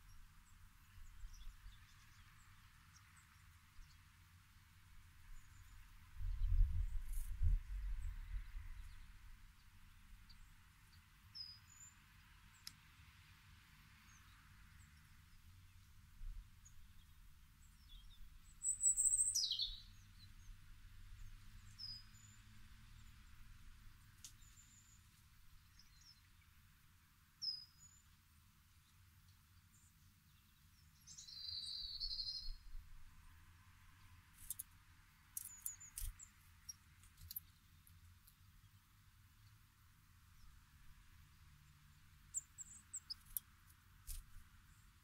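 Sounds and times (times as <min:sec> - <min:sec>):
small songbirds chirping: 0:00.0 - 0:45.0
bird twittering trill: 0:16.6 - 0:20.6, 0:21.2 - 0:22.4, 0:29.7 - 0:32.7, 0:35.4 - 0:37.8, 0:42.3 - 0:43.4.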